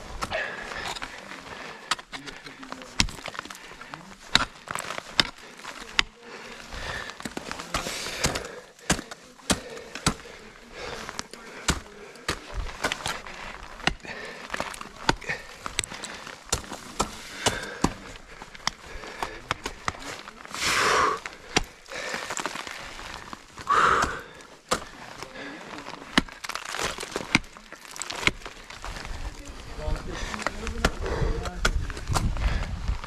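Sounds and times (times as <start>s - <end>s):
ice axe striking ice: 1.8s - 3.5s, 26.0s - 28.8s.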